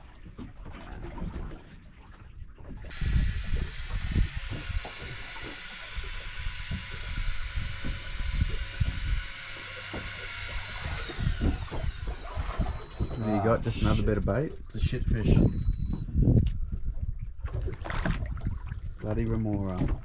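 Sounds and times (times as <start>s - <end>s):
wind buffeting microphone: 2.9s - 9.4s, 10.8s - 20.0s.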